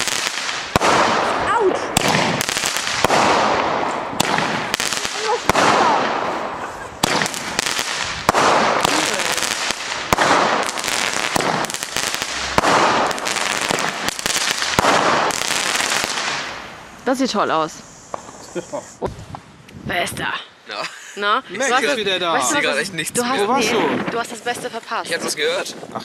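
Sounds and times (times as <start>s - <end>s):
firework shots cracking and hissing: 0.0s - 19.5s.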